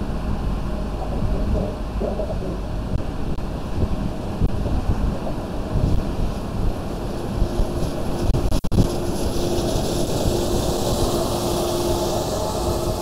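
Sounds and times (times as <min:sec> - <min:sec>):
tyre and wind noise: 0:00.0 - 0:13.0.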